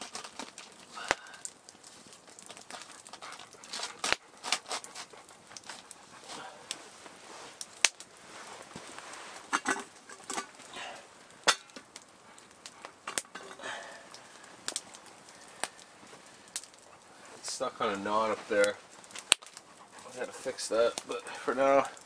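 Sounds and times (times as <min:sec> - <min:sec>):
cooking pot clanking: 0:09.5 - 0:10.5, 0:11.5 - 0:11.8.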